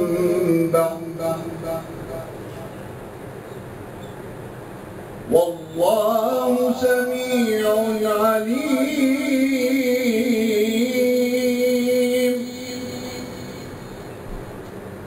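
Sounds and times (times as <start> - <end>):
man reciting melodically: 0.0 - 2.7, 5.3 - 14.1.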